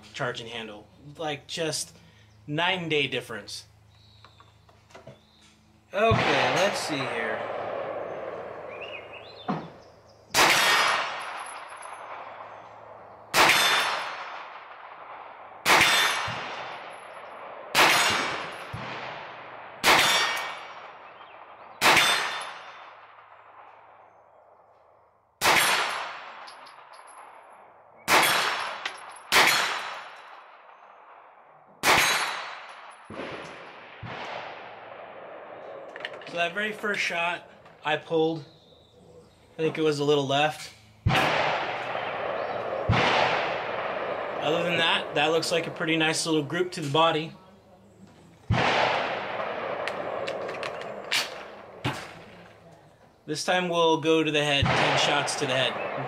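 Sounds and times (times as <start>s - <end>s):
rifle gunshots: 6.0s - 24.2s, 25.4s - 37.6s, 41.0s - 47.2s, 48.4s - 52.7s, 54.4s - 56.0s.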